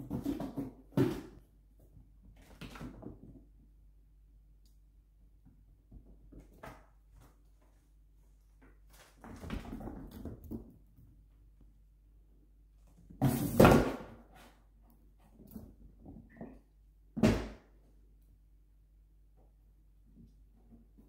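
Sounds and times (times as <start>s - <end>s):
knocking and rustling on floor: 0.0s - 1.5s.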